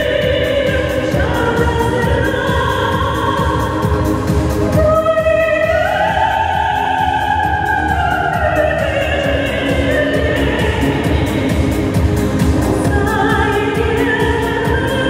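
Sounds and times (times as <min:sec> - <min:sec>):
music with a steady beat: 0:00.0 - 0:15.0.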